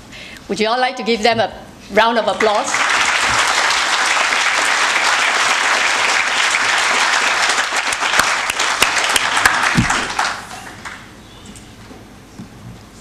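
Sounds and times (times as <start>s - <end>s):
audience applauding: 2.4s - 11.2s.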